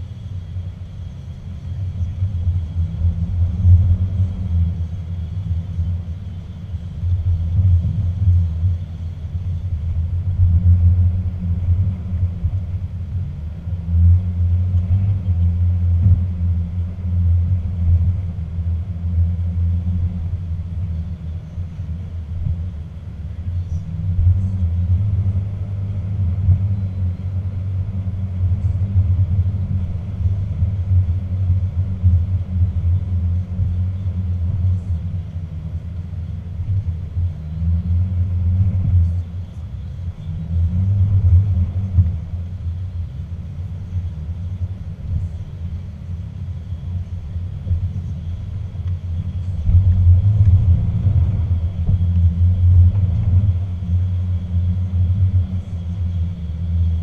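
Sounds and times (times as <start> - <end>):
pickup truck engine rumble: 0.0 - 57.0.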